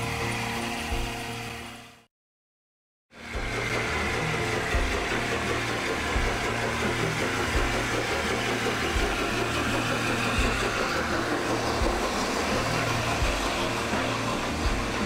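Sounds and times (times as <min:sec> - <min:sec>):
steam locomotive exhaust: 0:03.2 - 0:15.0
train wheels on rails: 0:03.2 - 0:15.0.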